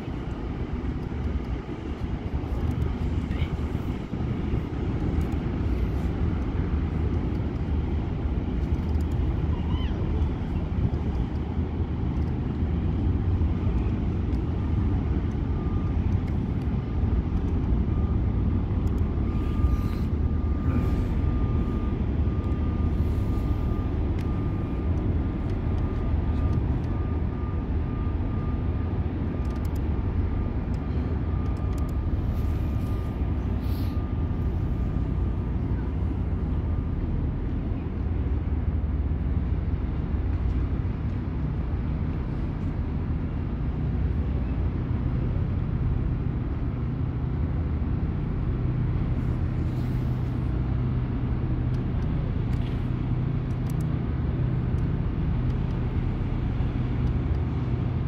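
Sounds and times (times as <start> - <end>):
ship engines rumbling: 0.0 - 58.0
faint thin whine: 17.4 - 38.0.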